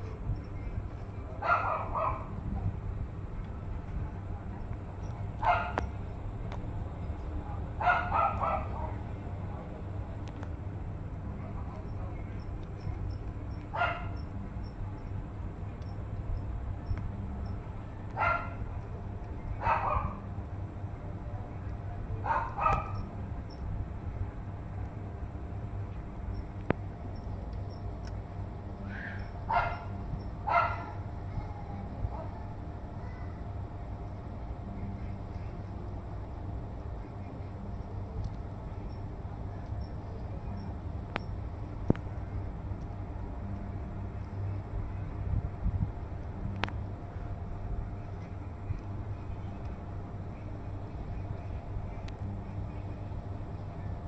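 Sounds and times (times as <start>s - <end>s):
low background rumble: 0.0s - 54.0s
bark-like animal calls: 1.4s - 2.3s, 5.4s - 5.9s, 7.8s - 9.0s, 13.7s - 14.2s, 18.2s - 18.6s, 19.6s - 20.2s, 22.2s - 23.1s, 28.9s - 31.0s
gecko croaking barks: 5.4s - 5.9s, 7.8s - 9.0s.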